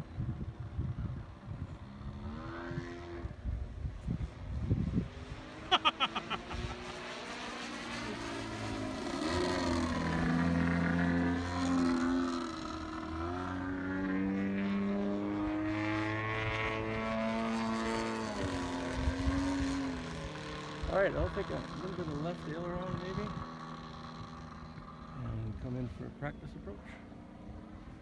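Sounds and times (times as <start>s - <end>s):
model aeroplane motor and propeller: 7.7s - 14.2s, 17.3s - 28.0s.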